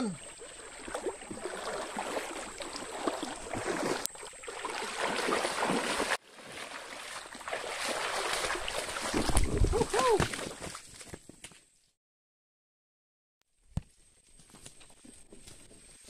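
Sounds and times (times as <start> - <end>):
person wading through water: 0.0 - 11.0
fish thrashing in shallow water: 0.2 - 10.8.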